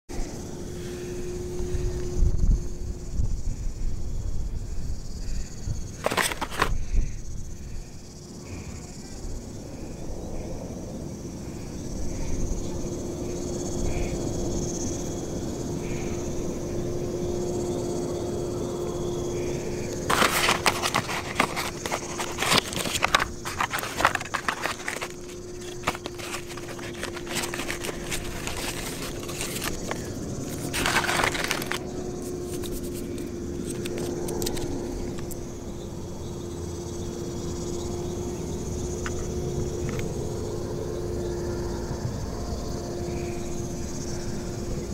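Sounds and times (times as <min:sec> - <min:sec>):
crickets and insects calling: 0:00.1 - 0:44.9
close rustling and crackling: 0:06.0 - 0:06.8, 0:19.9 - 0:34.7.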